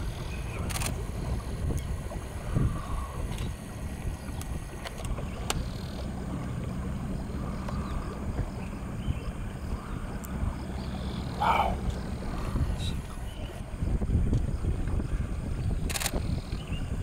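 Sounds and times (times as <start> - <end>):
boat engine rumble: 0.0 - 17.0
faint sharp clicks: 4.3 - 5.7, 10.2 - 10.4.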